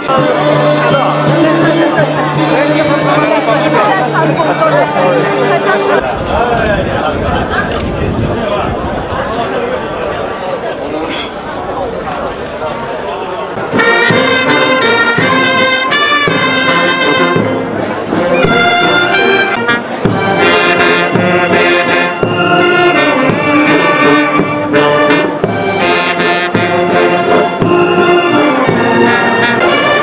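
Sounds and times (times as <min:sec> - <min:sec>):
brass band playing: 0:00.0 - 0:06.0, 0:13.6 - 0:30.0.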